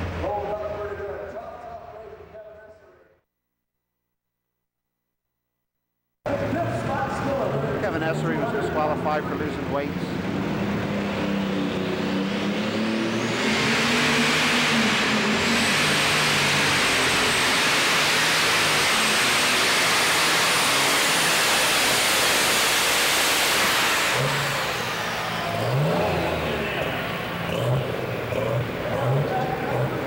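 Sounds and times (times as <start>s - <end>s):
tractor engine roaring: 6.3s - 30.0s.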